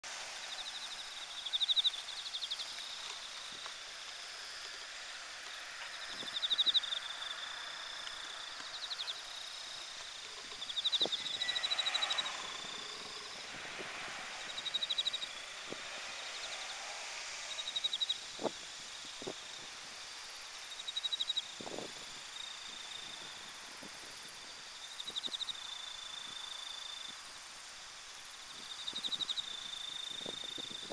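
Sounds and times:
crickets trilling: 0:00.2 - 0:30.9
high background insect chirring: 0:00.3 - 0:30.9.

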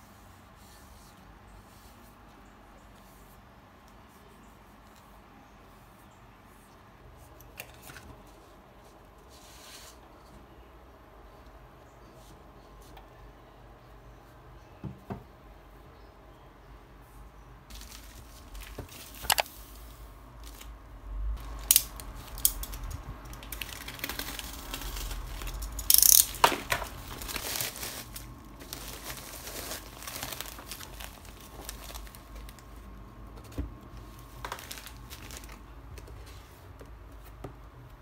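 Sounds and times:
plastic mailer tearing and crinkling: 0:17.7 - 0:19.6, 0:21.4 - 0:32.8, 0:34.3 - 0:35.7.

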